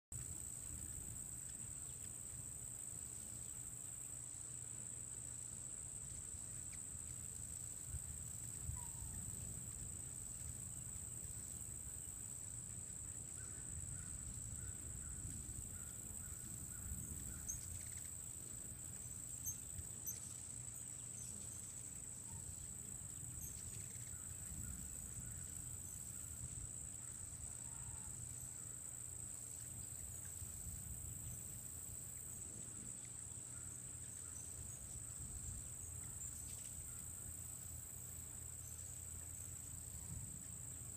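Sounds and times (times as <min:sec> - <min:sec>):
insects trilling: 0:00.2 - 0:40.9
faint chirps: 0:08.6 - 0:09.6, 0:13.3 - 0:26.4.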